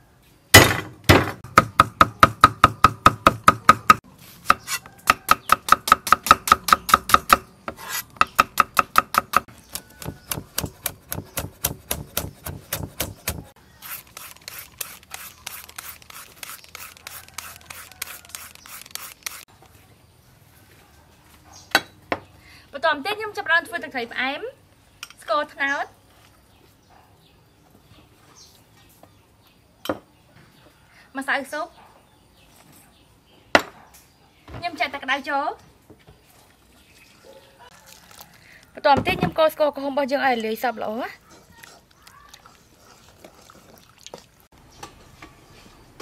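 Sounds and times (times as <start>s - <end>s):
cleaver chopping on wooden block: 0.6s - 13.5s.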